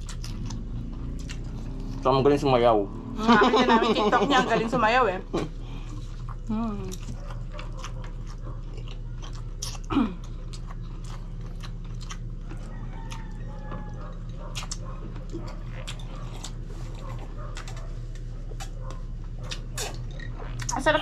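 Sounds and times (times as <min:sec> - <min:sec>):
chewing and lip smacking: 0:00.0 - 0:02.1, 0:05.8 - 0:20.9
steady low hum: 0:00.0 - 0:21.0.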